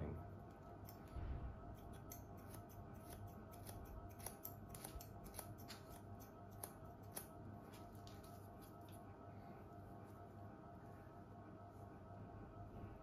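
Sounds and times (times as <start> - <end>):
scissors snipping hair: 0.8 - 9.0.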